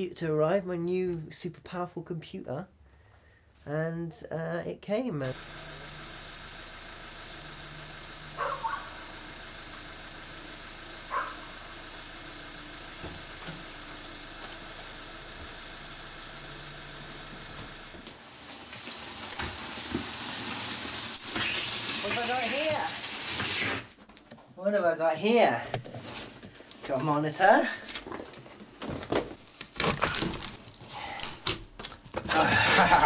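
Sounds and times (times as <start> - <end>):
van engine idling: 5.3 - 18.2.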